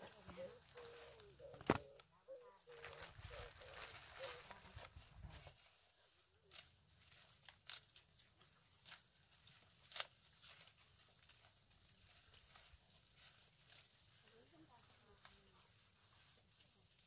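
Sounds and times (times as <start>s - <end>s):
faint snaps and rustles: 0.0s - 2.1s, 6.5s - 16.0s.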